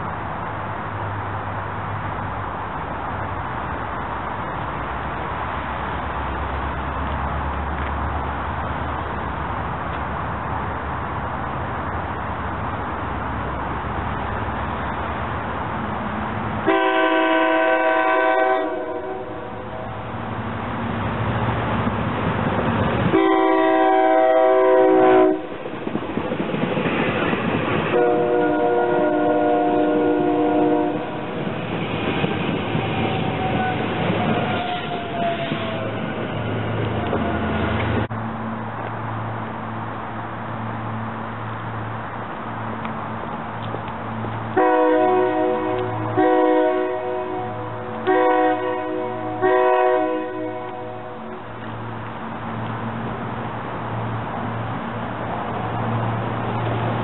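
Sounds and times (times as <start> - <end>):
train rumble: 0.0 - 57.0
train horn blast: 16.6 - 20.0, 23.1 - 25.6, 27.9 - 31.3, 44.6 - 51.4
wheels on rails: 25.4 - 28.3, 30.9 - 44.6.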